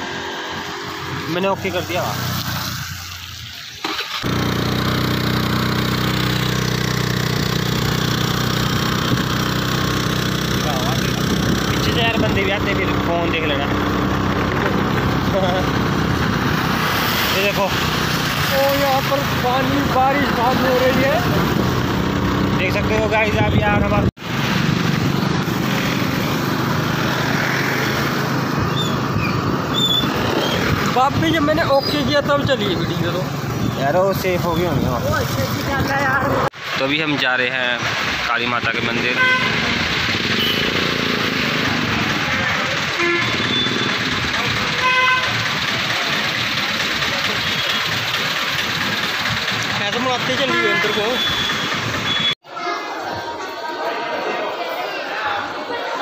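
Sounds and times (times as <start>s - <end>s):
scooter engine running: 3.8s - 36.5s, 38.7s - 52.4s
wind noise: 11.0s - 12.6s, 28.5s - 36.5s.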